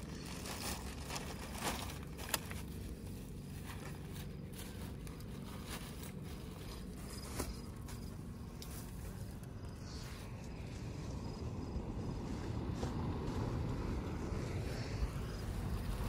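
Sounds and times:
plastic bag rustling: 0:00.0 - 0:09.5
steady low rumble: 0:00.0 - 0:16.0.

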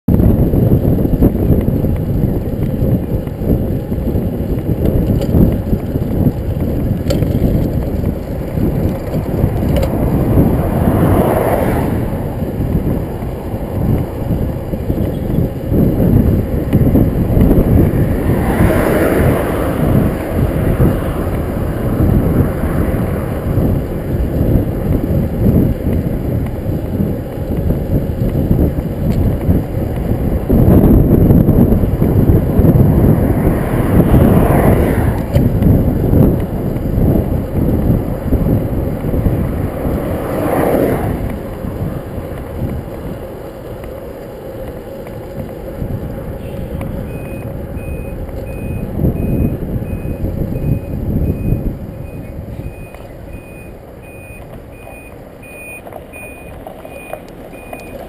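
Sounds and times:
wind buffeting microphone: 0:00.1 - 0:58.0.

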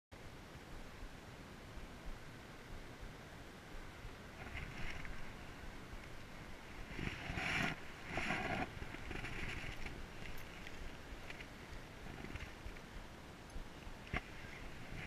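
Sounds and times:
leaves rustling: 0:04.2 - 0:15.0.

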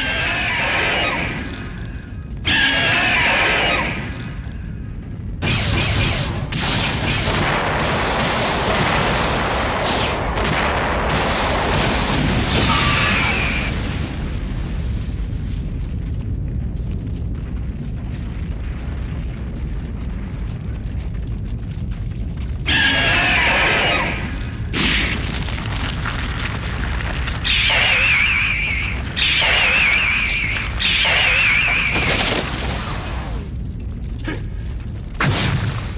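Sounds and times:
monster roar with wavering cry: 0:00.0 - 0:01.6, 0:02.5 - 0:04.2, 0:22.7 - 0:24.2
heavy explosion booms: 0:00.7 - 0:35.9
low rumble: 0:03.7 - 0:12.6, 0:13.6 - 0:35.9.

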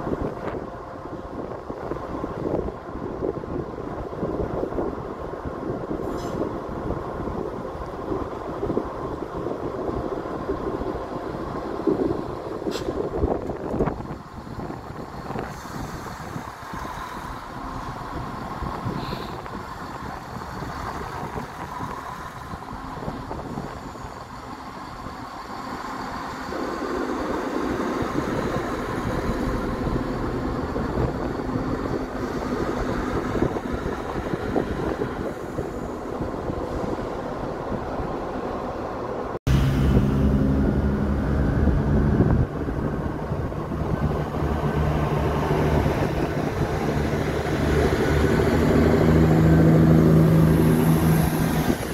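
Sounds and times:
diesel train rumbling past: 0:00.0 - 0:51.9
deep diesel engine note: 0:39.5 - 0:44.8.

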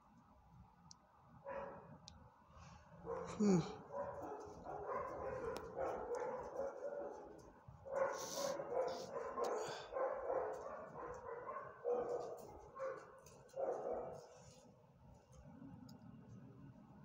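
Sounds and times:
dogs barking: 0:01.5 - 0:01.9, 0:03.0 - 0:14.4.

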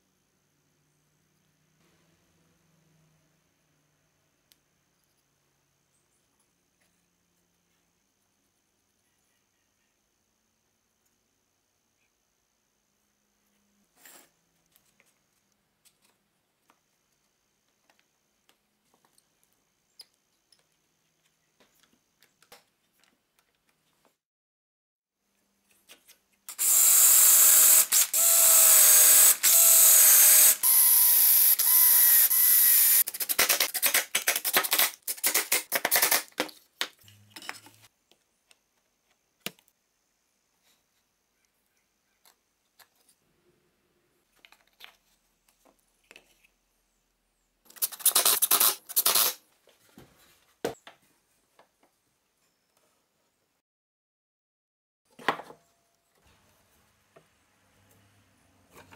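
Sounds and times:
power tool motor running: 0:26.5 - 0:33.0.

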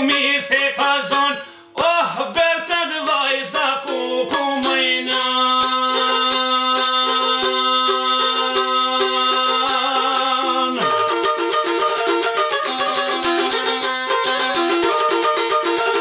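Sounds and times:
man singing a folk song: 0:00.0 - 0:11.6
plucked long-necked lute: 0:00.0 - 0:16.0.

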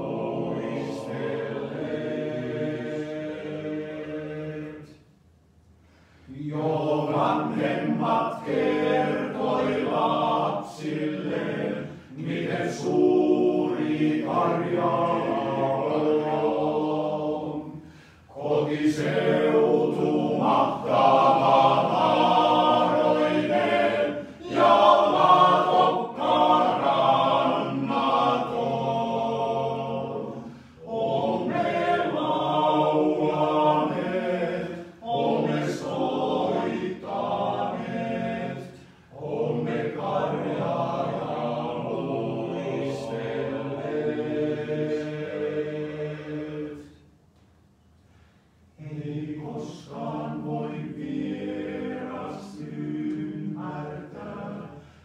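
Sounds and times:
male choir singing a cappella: 0:00.0 - 0:05.1, 0:06.3 - 0:47.0, 0:48.8 - 0:55.0
singers breathing: 0:05.7 - 0:06.4, 0:17.7 - 0:18.4, 0:30.4 - 0:30.9, 0:38.8 - 0:39.2, 0:47.9 - 0:48.8, 0:54.7 - 0:55.0.

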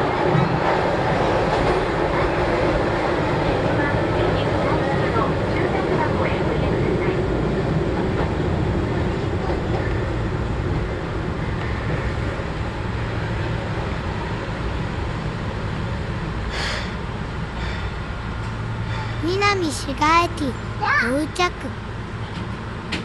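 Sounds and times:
train motors and wheels rumbling: 0:00.0 - 0:23.0.

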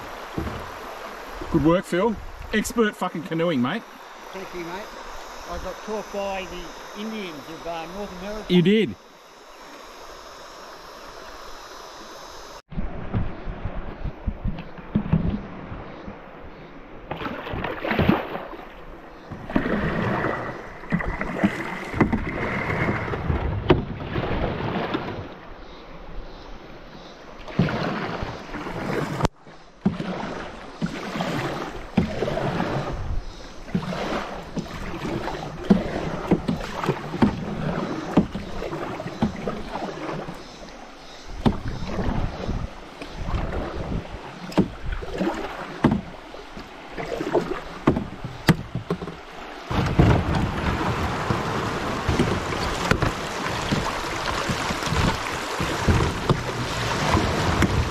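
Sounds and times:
paddle strokes and water splashing: 0:00.0 - 0:57.9
hull scraping on rocks: 0:47.2 - 0:57.9.

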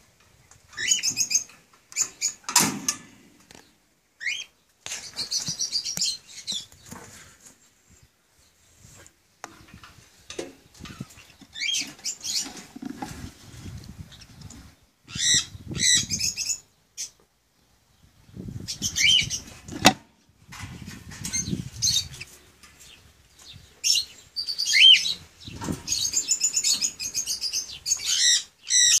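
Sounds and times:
parrots chattering harsh calls: 0:15.1 - 0:17.1, 0:26.2 - 0:29.0.

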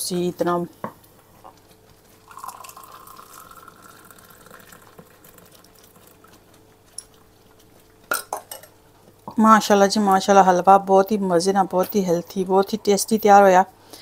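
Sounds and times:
porridge pouring into a glass: 0:02.2 - 0:06.4.

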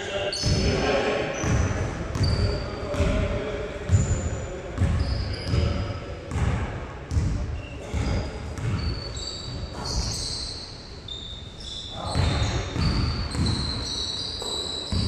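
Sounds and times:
sneakers squeaking on floor: 0:00.2 - 0:00.8, 0:01.4 - 0:03.3, 0:03.9 - 0:15.0
basketball dribbling: 0:01.4 - 0:03.2, 0:04.8 - 0:10.3, 0:12.0 - 0:15.0.

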